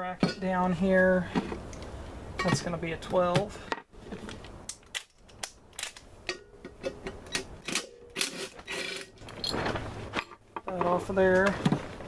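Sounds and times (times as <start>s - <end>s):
metal tools clinking: 2.4s - 2.7s, 4.6s - 10.4s.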